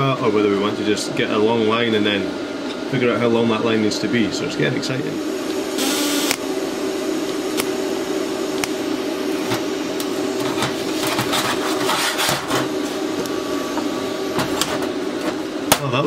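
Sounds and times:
welder buzzing: 5.0s - 15.8s
welding crackles and clicks: 6.2s - 6.5s, 7.3s - 7.8s.

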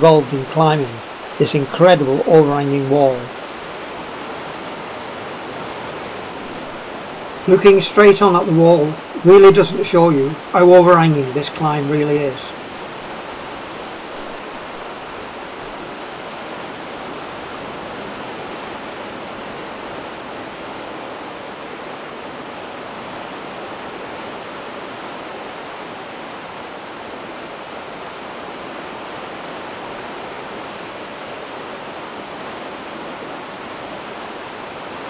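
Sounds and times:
steady rushing noise: 0.0s - 22.8s.

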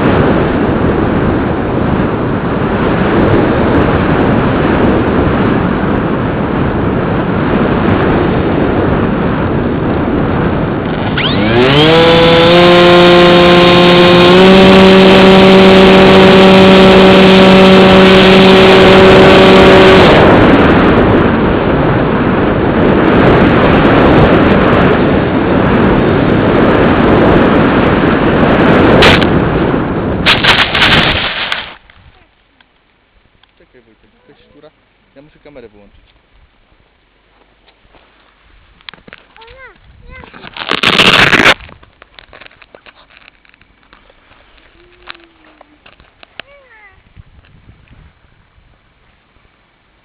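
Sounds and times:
electric motor and propeller whine: 0.0s - 31.9s, 40.5s - 41.8s
wind rushing over camera: 0.0s - 50.0s.

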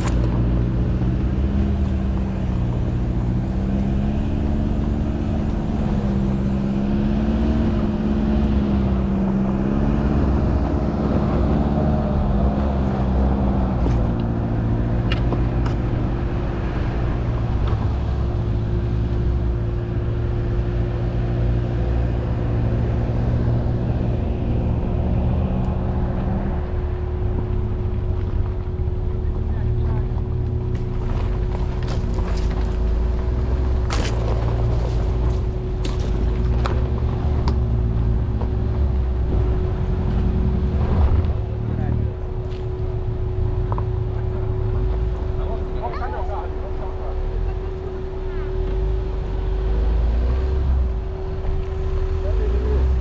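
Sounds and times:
suv engine running at low revs: 0.0s - 53.0s
tyre noise on dirt trail: 0.0s - 53.0s.

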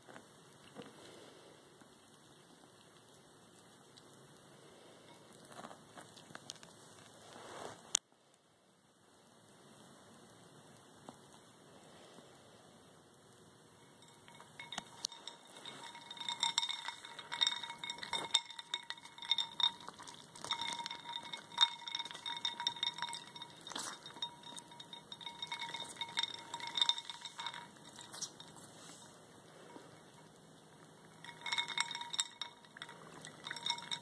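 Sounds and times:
ice cubes clinking in a bowl: 13.8s - 28.6s, 31.1s - 34.0s.

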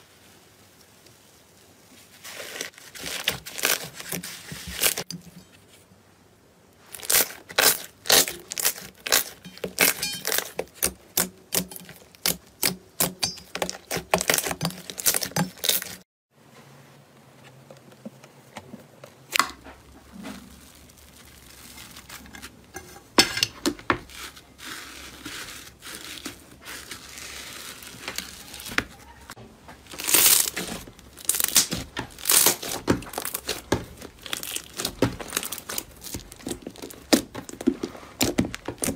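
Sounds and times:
slime popping and crackling: 2.3s - 5.1s, 6.8s - 16.0s, 19.3s - 22.3s, 29.8s - 38.9s.

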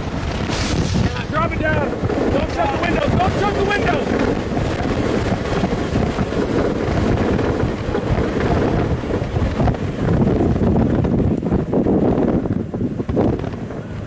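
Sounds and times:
strong wind on microphone: 0.0s - 14.0s.

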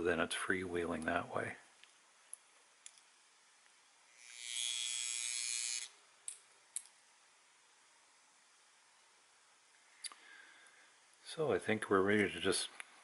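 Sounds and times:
clock motor buzzing whir: 4.1s - 6.0s.

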